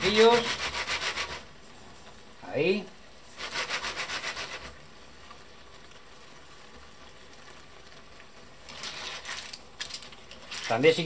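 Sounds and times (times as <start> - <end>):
sauce sizzling in a frying pan: 0.0 - 11.0
shells rattling while stirred: 8.7 - 11.0.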